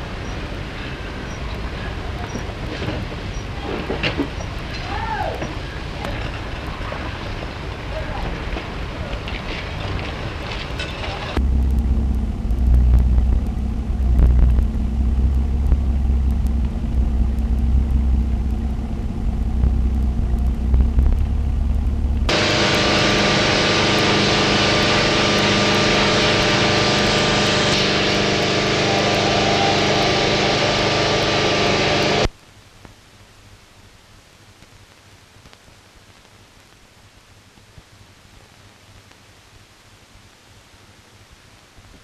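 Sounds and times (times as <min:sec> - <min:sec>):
low uneven machine drone: 0:11.3 - 0:32.3
steady machine hum with hiss: 0:11.4 - 0:42.0.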